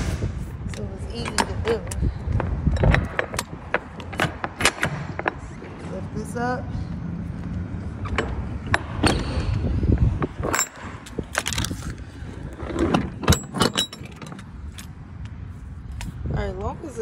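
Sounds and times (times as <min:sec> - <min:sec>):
metal ramp clanking and rattling: 0:08.0 - 0:11.8, 0:12.6 - 0:14.9.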